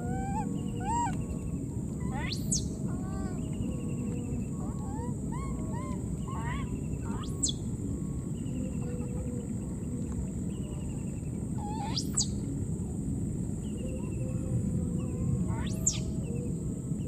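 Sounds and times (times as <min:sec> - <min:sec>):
steady low rumble: 0:00.0 - 0:17.0
high-pitched sweeping animal calls: 0:02.1 - 0:02.8.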